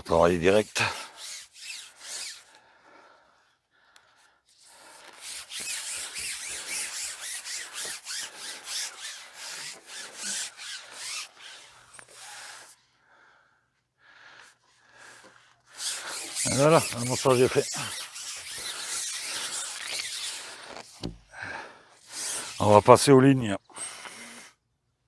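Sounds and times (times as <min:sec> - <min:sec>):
fishing pole rubbing and scraping: 0:00.5 - 0:02.5, 0:04.5 - 0:12.8, 0:15.7 - 0:21.2, 0:22.0 - 0:23.1.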